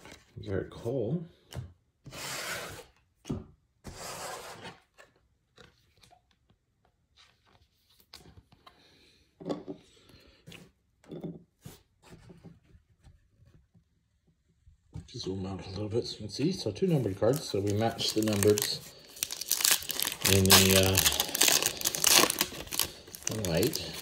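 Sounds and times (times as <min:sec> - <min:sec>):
cards sliding and rustling: 0:03.9 - 0:06.1, 0:16.4 - 0:24.0.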